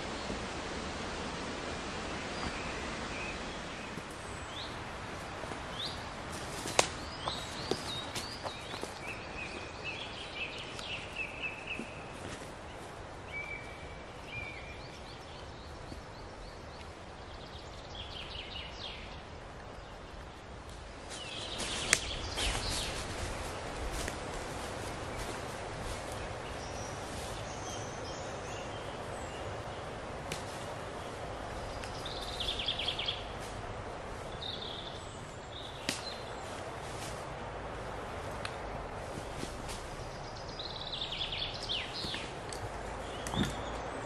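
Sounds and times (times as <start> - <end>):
wind in the trees: 0.0 - 44.0
small birds chirping: 2.0 - 44.0
footsteps in dry leaves: 2.9 - 15.1, 20.8 - 40.2.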